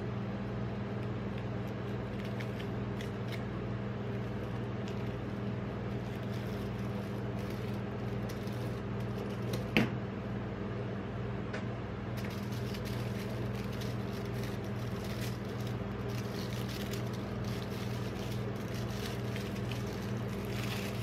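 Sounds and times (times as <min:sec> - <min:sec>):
low hum: 0:00.0 - 0:21.0
cardboard and foil crinkling: 0:01.8 - 0:09.7, 0:12.2 - 0:21.0.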